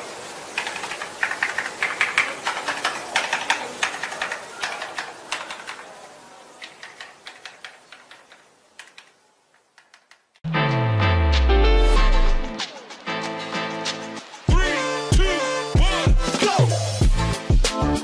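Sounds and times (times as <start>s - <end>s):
mechanical keyboard typing: 0.5s - 10.4s.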